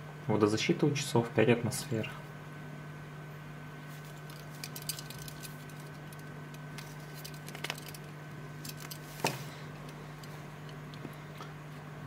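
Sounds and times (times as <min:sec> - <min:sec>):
steady low hum: 0:00.0 - 0:12.0
watch strap clicks and rustles: 0:04.0 - 0:09.2.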